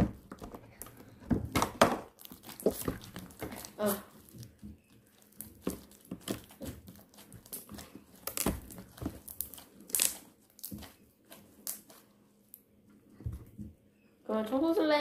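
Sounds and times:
slime crackling and popping: 0:02.0 - 0:12.6.

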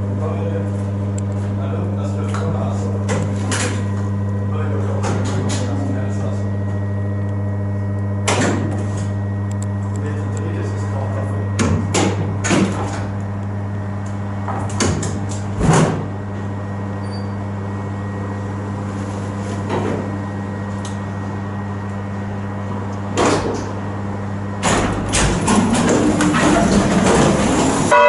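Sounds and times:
low electrical hum: 0:00.0 - 0:28.0
loud clatter: 0:24.6 - 0:27.9.

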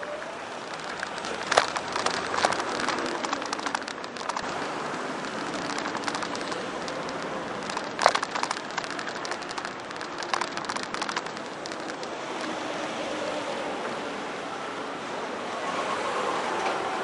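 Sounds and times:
bicycle rattling clicks: 0:00.6 - 0:12.6.

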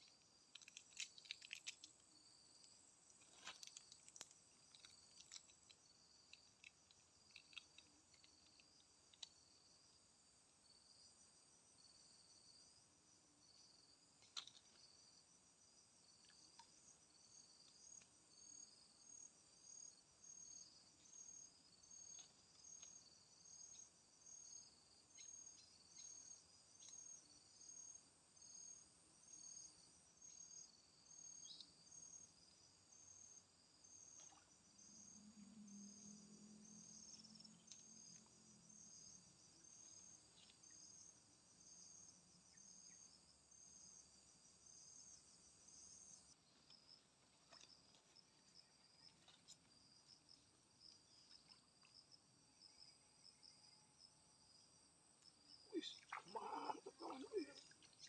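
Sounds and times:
insects pulsing chorus: 0:17.1 - 0:58.0.

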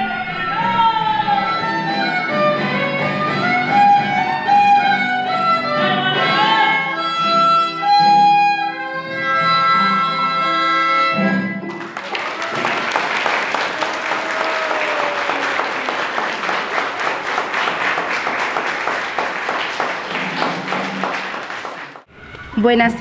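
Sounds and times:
small crowd applauding: 0:11.7 - 0:22.1.

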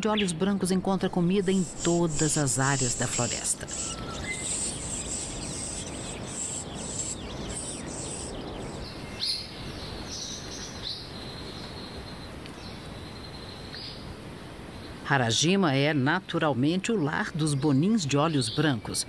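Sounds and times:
small birds chirping: 0:00.0 - 0:19.0
steady background hiss: 0:00.0 - 0:19.0.

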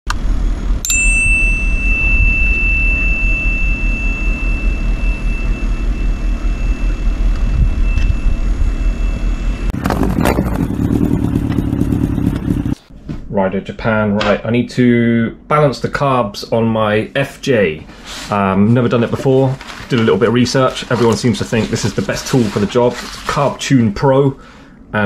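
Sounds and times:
thin high steady tone: 0:00.8 - 0:09.7
motorcycle engine idling: 0:10.4 - 0:12.8.

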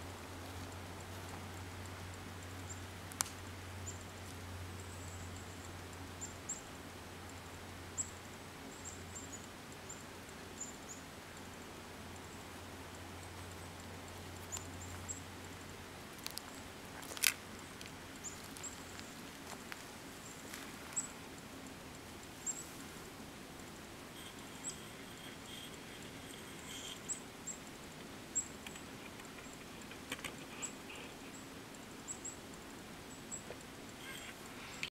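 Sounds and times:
soft background hiss: 0:00.0 - 0:34.9
sharp clicks: 0:23.6 - 0:31.8
high-pitched chirps: 0:24.1 - 0:27.6.

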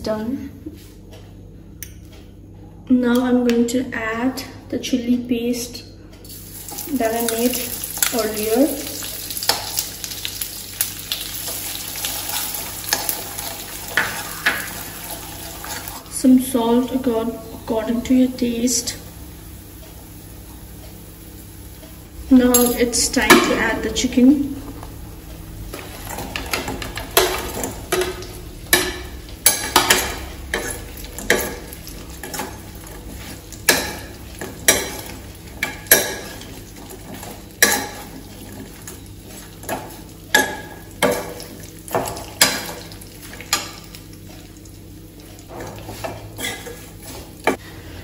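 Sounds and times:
hot oil sizzling: 0:06.3 - 0:16.2, 0:18.6 - 0:48.0
metal skimmer clanking in a pan: 0:33.6 - 0:36.5, 0:37.1 - 0:38.2.

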